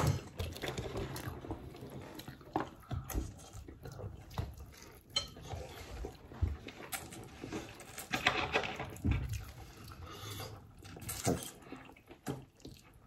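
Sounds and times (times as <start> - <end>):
chewing and mouth noises: 0.0 - 13.0
plates and cutlery clinking: 5.1 - 6.0.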